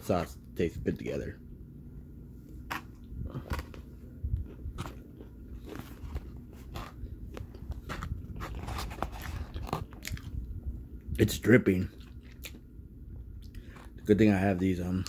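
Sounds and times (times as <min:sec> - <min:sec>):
person chewing with mouth smacks: 0:02.7 - 0:10.5, 0:11.9 - 0:12.6.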